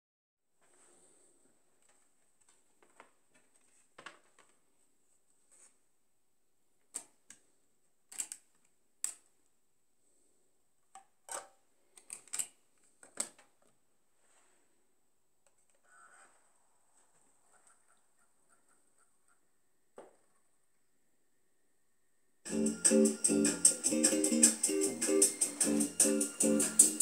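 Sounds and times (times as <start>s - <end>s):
plastic clicks and clatter: 8.1s - 9.3s, 10.9s - 13.8s.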